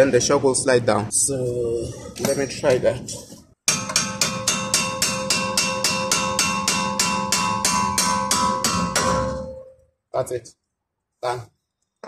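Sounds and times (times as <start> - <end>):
hammer blows on metal: 3.7 - 9.7.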